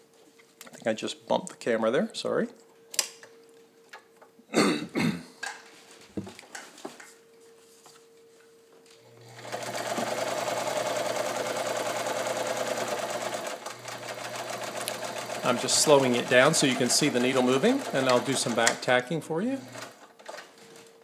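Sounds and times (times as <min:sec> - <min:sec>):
sewing machine running: 0:09.1 - 0:20.0.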